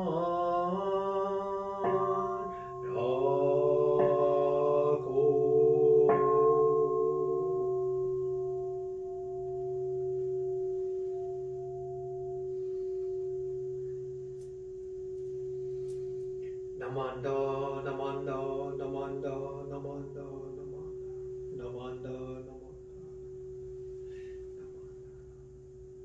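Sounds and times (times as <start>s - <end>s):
person chanting: 0.0s - 9.4s, 16.8s - 25.5s
temple bell ringing: 0.0s - 25.2s.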